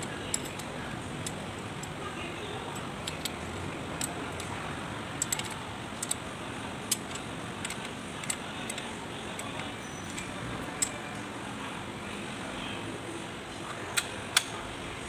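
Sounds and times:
hex key clicking on metal bolt: 0:00.0 - 0:02.0, 0:02.7 - 0:04.6, 0:05.2 - 0:11.0.

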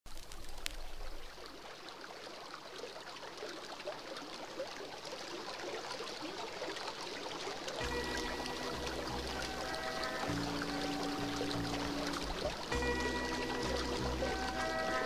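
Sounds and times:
water fountain trickling: 0:00.1 - 0:15.0.

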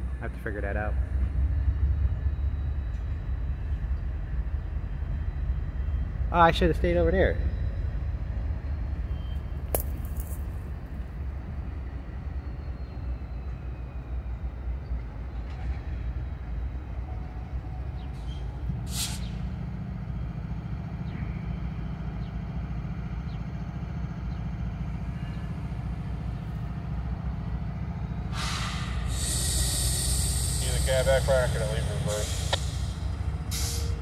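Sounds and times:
locomotive engines idling: 0:00.0 - 0:34.0
air brakes hissing: 0:18.1 - 0:19.5, 0:28.2 - 0:34.0.

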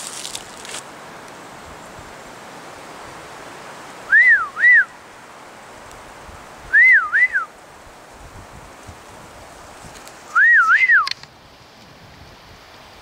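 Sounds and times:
faint outdoor hiss: 0:00.0 - 0:13.0
person whistling: 0:04.1 - 0:04.9, 0:06.7 - 0:07.5, 0:10.3 - 0:11.1.

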